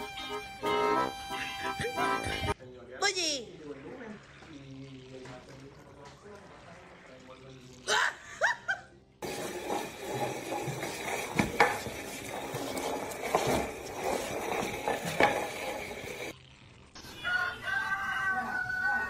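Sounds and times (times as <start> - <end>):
pot scraping on wooden floor: 9.2 - 16.4.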